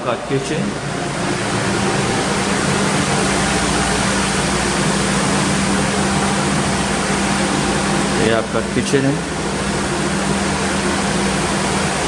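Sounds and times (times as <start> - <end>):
fan rushing air: 0.0 - 12.0
low hum: 0.0 - 12.0.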